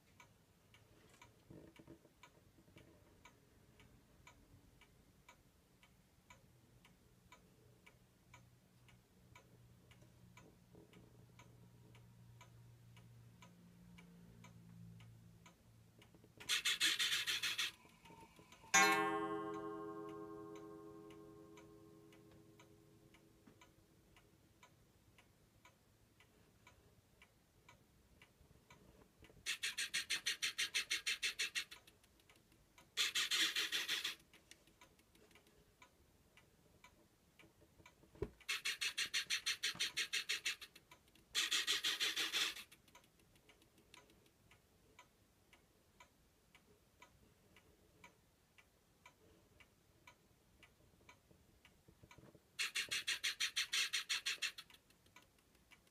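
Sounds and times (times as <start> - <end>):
faint steady ticking: 0.0 - 55.9
ringing tone: 18.7 - 22.1.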